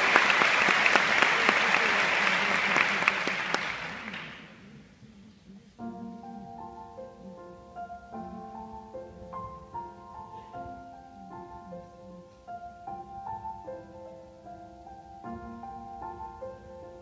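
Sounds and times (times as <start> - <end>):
audience applause: 0.0 - 4.6
slow piano chords: 5.7 - 17.0.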